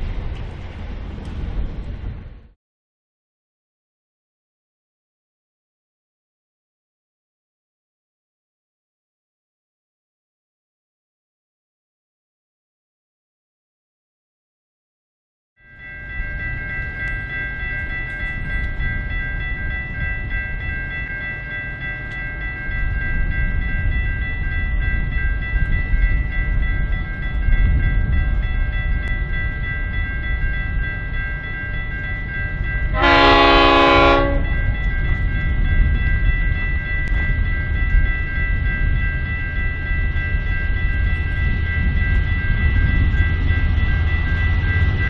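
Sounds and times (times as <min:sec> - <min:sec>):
diesel locomotive engine rumble: 0:00.0 - 0:02.6, 0:15.7 - 0:45.0
train horn chord: 0:32.9 - 0:34.8.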